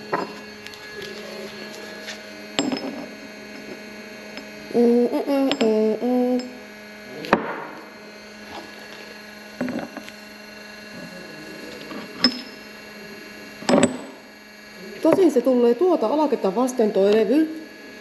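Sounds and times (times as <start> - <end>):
steady hum: 0.0 - 18.0
metal parts clicking and knocking: 13.6 - 14.2.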